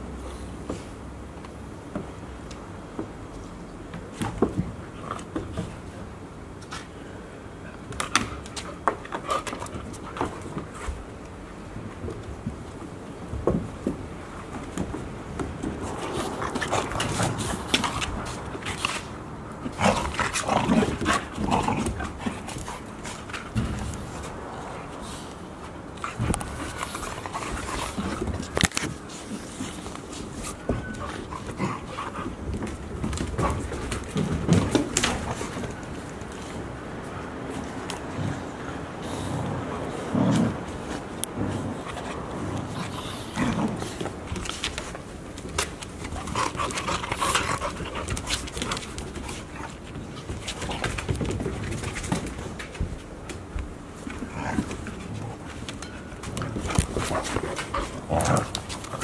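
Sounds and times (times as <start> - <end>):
paws scuffling on hard floor: 11.8 - 38.4, 40.2 - 59.0
puppies growling: 15.8 - 25.0, 29.9 - 35.9, 38.1 - 44.4, 54.0 - 59.0.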